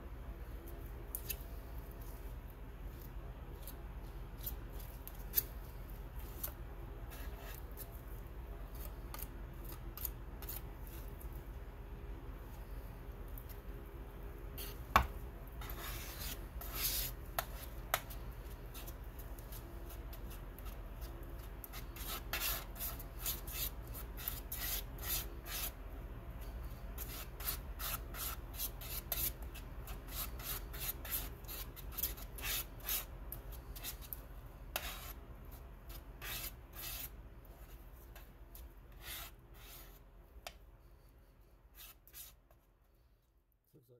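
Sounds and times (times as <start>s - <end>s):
palette knife scraping paint: 6.2s - 11.3s, 15.6s - 25.8s, 26.4s - 42.7s.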